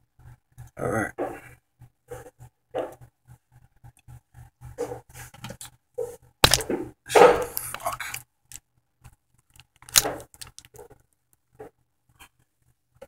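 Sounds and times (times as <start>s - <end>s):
plastic toy handling clatter: 6.4s - 6.8s, 7.4s - 8.6s, 9.4s - 11.0s.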